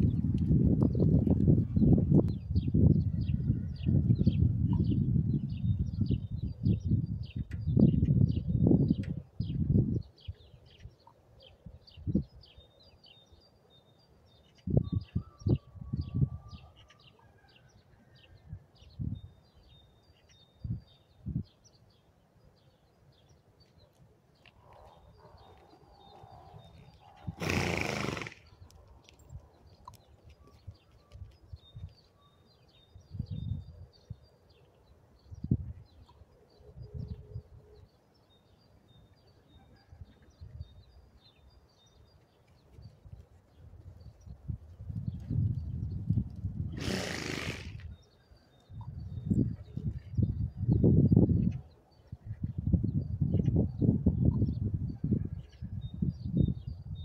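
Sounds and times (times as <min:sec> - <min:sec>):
small birds chirping: 0:18.8 - 0:54.7
horse snorting: 0:27.3 - 0:28.5, 0:46.8 - 0:47.9.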